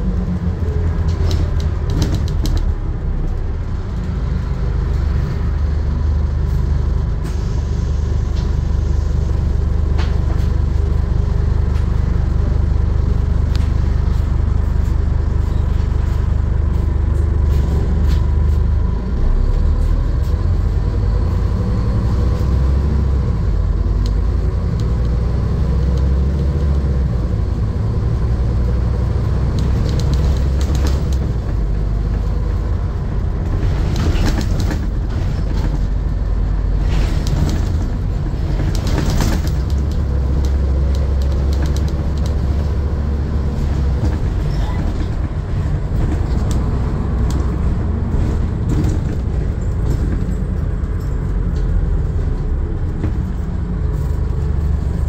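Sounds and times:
bus diesel engine droning: 0:00.0 - 0:55.0
road noise: 0:00.0 - 0:55.0
knocks and rattles: 0:33.4 - 0:42.8, 0:43.5 - 0:53.5.

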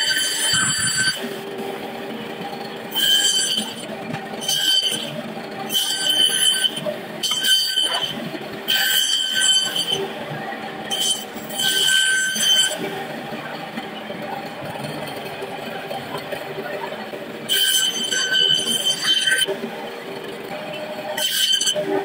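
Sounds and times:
saw blade squealing: 0:00.0 - 0:01.4, 0:02.9 - 0:03.8, 0:04.4 - 0:10.0, 0:10.8 - 0:12.8, 0:17.5 - 0:19.5, 0:20.7 - 0:22.0
band saw motor hum: 0:00.0 - 0:22.0.

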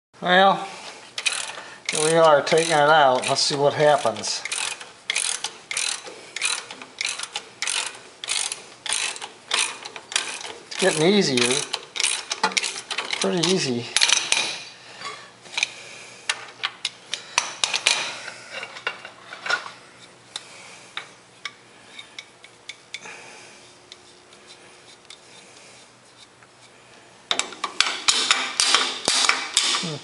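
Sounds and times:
metallic wrench clicks: 0:01.2 - 0:14.4.

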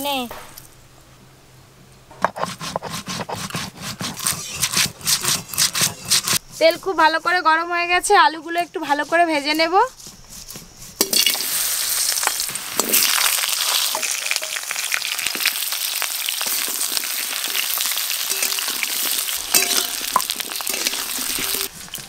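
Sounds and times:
potatoes sizzling in hot oil: 0:11.0 - 0:22.0.

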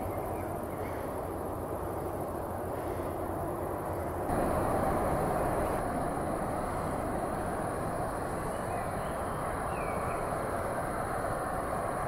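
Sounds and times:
distant jet engines: 0:00.0 - 0:12.0
faint bird chirps: 0:08.4 - 0:10.4.

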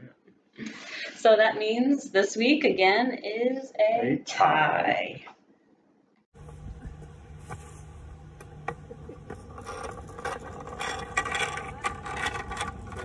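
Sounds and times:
chair wheels rolling on asphalt: 0:06.4 - 0:13.0.

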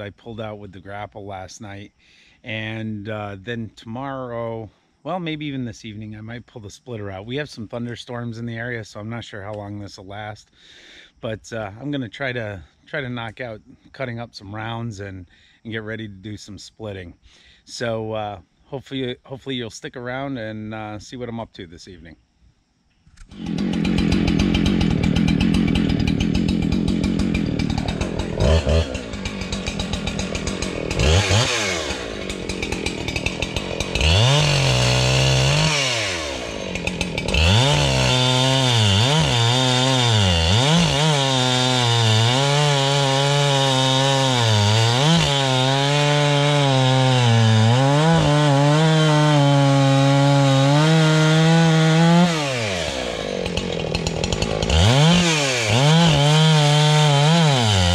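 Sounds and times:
chainsaw cutting through logs: 0:23.2 - 0:57.9.

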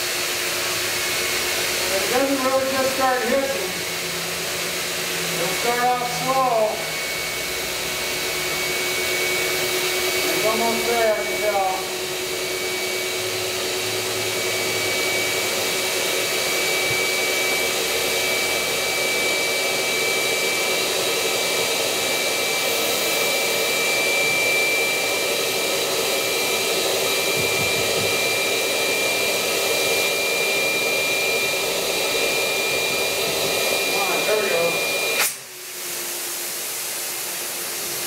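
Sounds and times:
electric air blower whining: 0:00.0 - 0:38.0.

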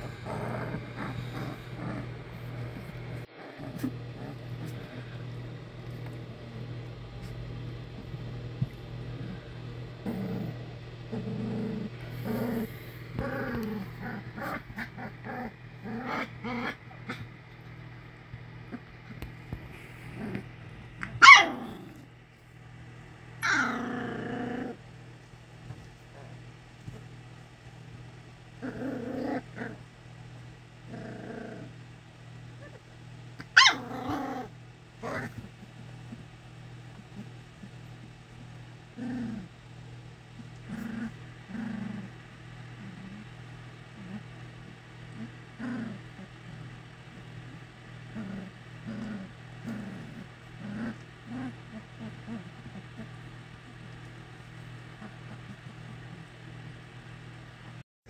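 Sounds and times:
puppies growling and yipping: 0:00.0 - 0:17.8, 0:18.6 - 0:22.1, 0:23.4 - 0:24.8, 0:28.6 - 0:29.9, 0:30.8 - 0:31.8, 0:32.6 - 0:36.2, 0:38.9 - 0:39.6, 0:40.4 - 0:57.1
steady low hum: 0:00.0 - 0:57.8
puppy high yelp: 0:21.2 - 0:21.6, 0:33.6 - 0:33.9.

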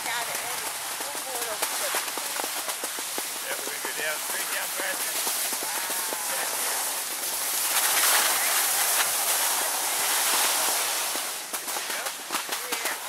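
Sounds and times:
skis scraping over packed snow: 0:00.0 - 0:13.0.

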